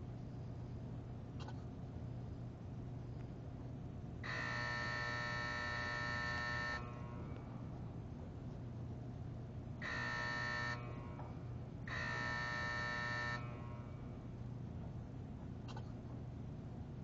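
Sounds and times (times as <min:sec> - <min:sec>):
low electrical hum: 0:00.0 - 0:17.0
electric warning buzzer: 0:04.2 - 0:07.5, 0:09.8 - 0:14.3.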